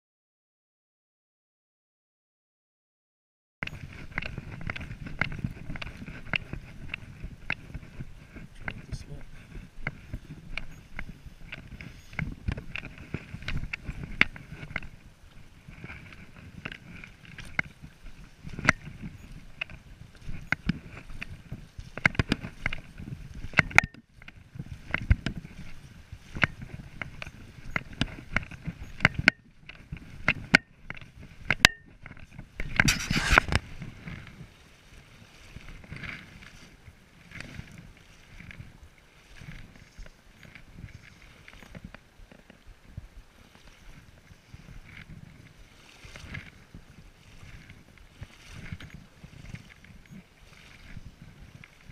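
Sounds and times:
sloshing through shallow water: 0:03.6 - 0:51.9
brush and gear rustling: 0:32.1 - 0:42.6.

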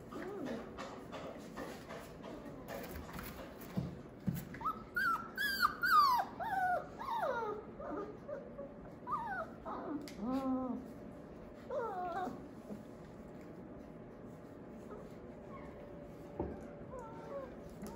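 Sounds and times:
puppies whining and yelping: 0:04.4 - 0:10.9, 0:11.5 - 0:12.8, 0:14.8 - 0:17.9.

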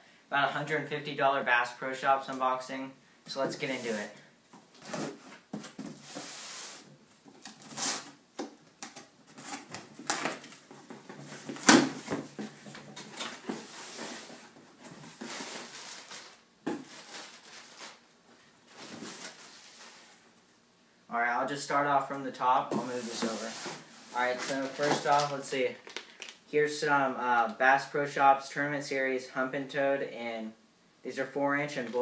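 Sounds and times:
cardboard rustles and knocks: 0:09.5 - 0:15.3.

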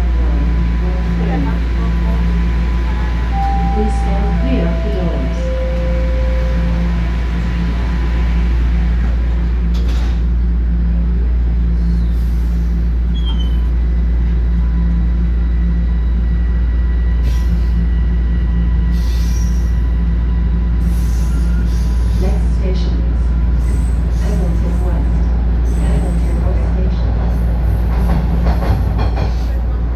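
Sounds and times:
subway train rumble and hum: 0:00.0 - 0:29.9.

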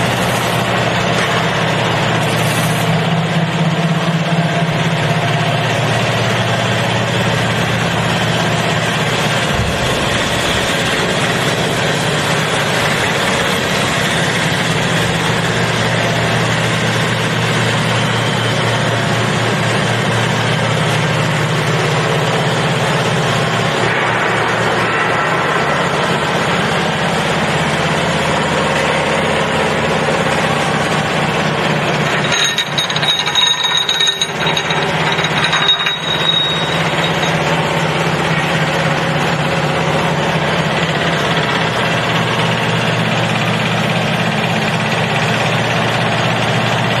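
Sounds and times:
vibrating feeder hum and rattle: 0:00.0 - 0:47.0
high ringing tone: 0:32.1 - 0:37.8.

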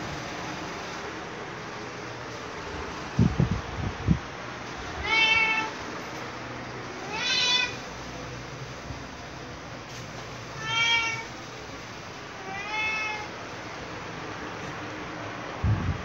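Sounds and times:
steady background hiss: 0:00.0 - 0:16.0
cat meowing: 0:04.8 - 0:05.8, 0:07.0 - 0:07.9, 0:10.4 - 0:11.4, 0:12.3 - 0:13.4.

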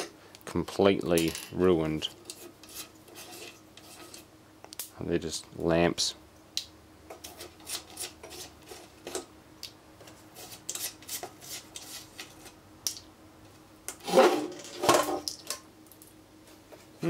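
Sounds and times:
metallic scrapes and clatters: 0:02.2 - 0:04.3, 0:14.0 - 0:15.2.

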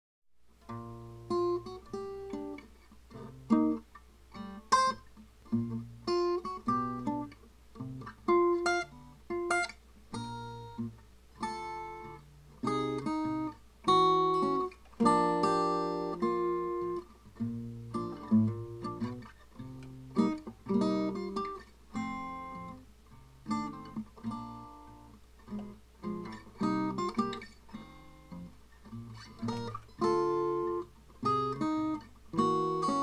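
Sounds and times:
acoustic guitar playing: 0:00.5 - 0:33.0.

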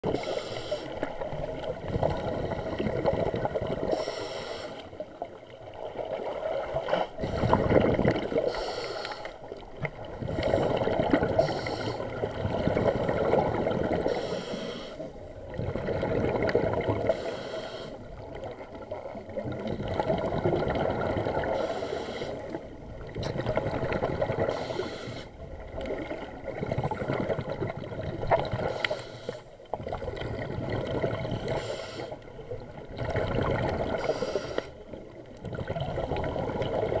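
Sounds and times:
exhaled bubbles gurgling underwater: 0:00.0 - 0:37.0
regulator valve hiss: 0:03.9 - 0:04.8, 0:14.1 - 0:15.1, 0:17.1 - 0:18.0, 0:24.5 - 0:25.3.

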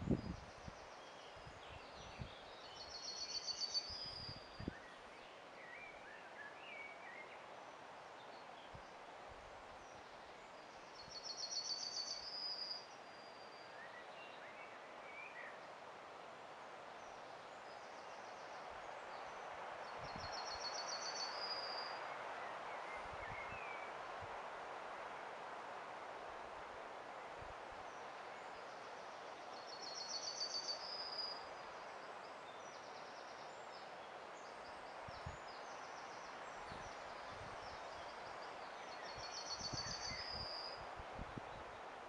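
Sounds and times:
songbird singing a fast trill: 0:00.0 - 0:07.4, 0:09.8 - 0:15.6, 0:19.1 - 0:23.9, 0:29.5 - 0:41.6
steady hiss: 0:00.0 - 0:42.0
faint bird chirps: 0:09.8 - 0:15.6, 0:27.9 - 0:40.9.

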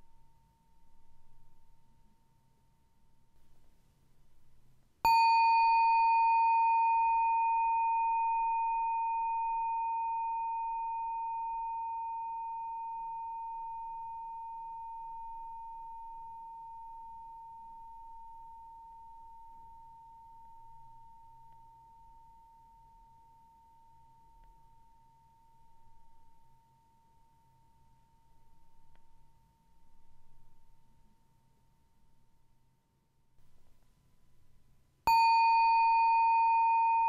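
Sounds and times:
meditation bell ringing: 0:05.0 - 0:28.1, 0:35.1 - 0:37.0.

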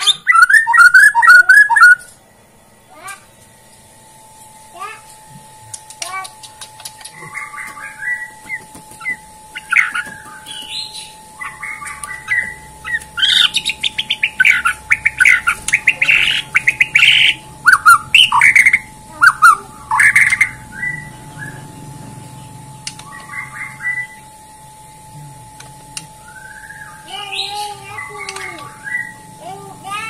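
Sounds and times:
bird singing varied song: 0:00.0 - 0:02.1, 0:07.0 - 0:24.2, 0:25.7 - 0:30.0.

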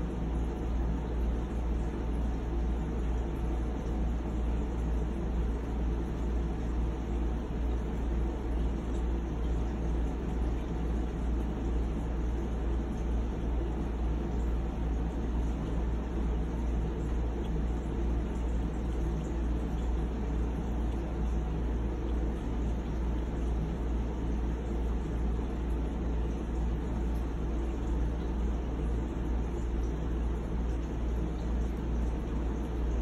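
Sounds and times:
low machine hum: 0:00.0 - 0:33.0.

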